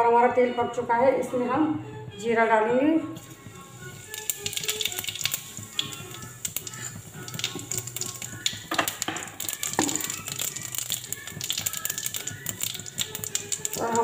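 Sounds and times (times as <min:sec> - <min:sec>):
seeds crackling in hot oil: 0:03.2 - 0:14.0.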